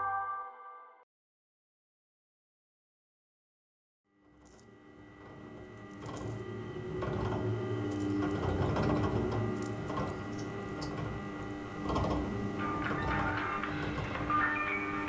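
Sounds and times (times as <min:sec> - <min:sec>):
machine whirring hum: 0:04.1 - 0:15.0.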